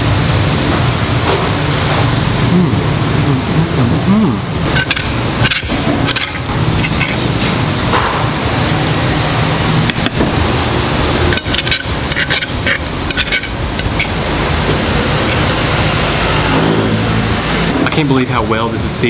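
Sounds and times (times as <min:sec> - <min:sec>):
cutlery scraping a metal plate: 0:04.7 - 0:07.4, 0:11.3 - 0:14.2.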